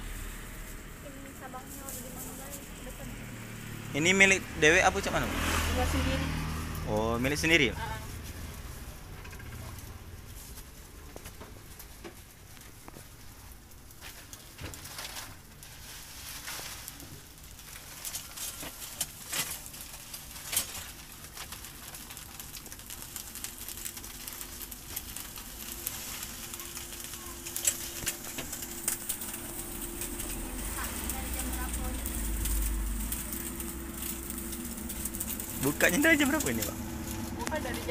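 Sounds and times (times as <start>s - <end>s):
beef sizzling on griddle: 11.9s - 37.9s.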